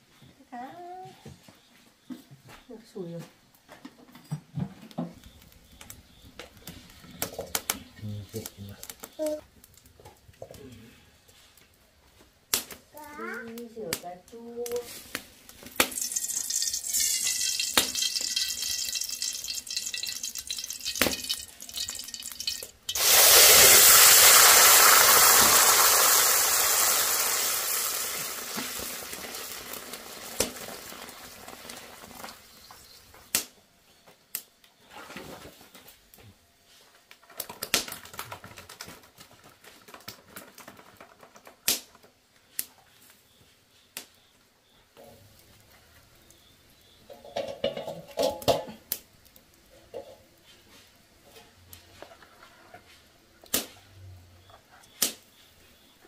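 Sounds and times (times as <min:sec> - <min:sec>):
clinks and knocks: 0:15.9 - 0:23.0, 0:47.1 - 0:48.8.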